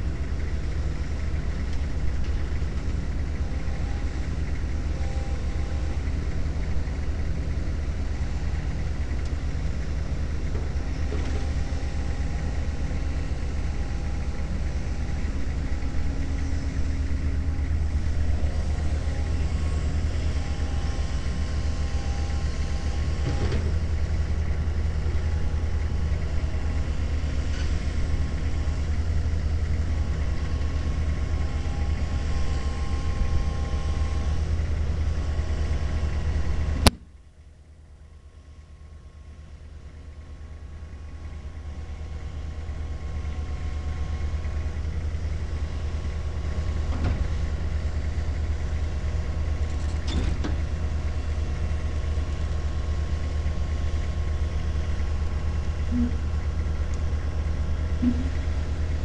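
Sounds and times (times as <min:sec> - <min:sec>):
diesel engines droning: 0:00.0 - 0:59.0
excavator hydraulics working: 0:54.4 - 0:59.0.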